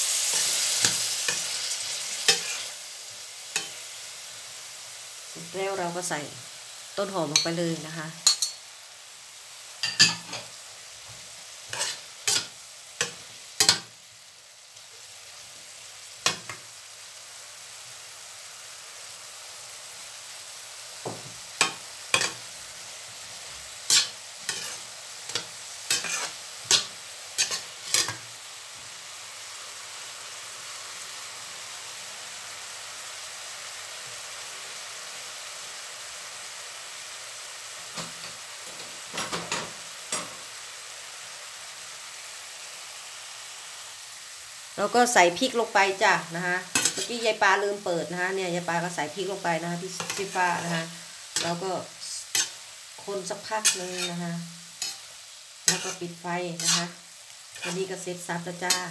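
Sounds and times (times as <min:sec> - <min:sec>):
vegetables sizzling in frying pan: 0:00.0 - 0:58.9
spatula scraping and tapping pan: 0:02.3 - 0:02.7, 0:08.2 - 0:08.6, 0:11.1 - 0:13.9, 0:21.0 - 0:22.4, 0:23.9 - 0:28.2, 0:53.6 - 0:54.1, 0:55.7 - 0:56.0, 0:57.6 - 0:57.8.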